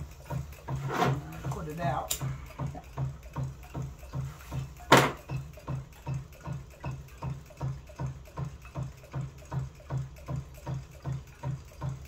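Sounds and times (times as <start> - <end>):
hot air engine thumping: 2.5 - 5.8.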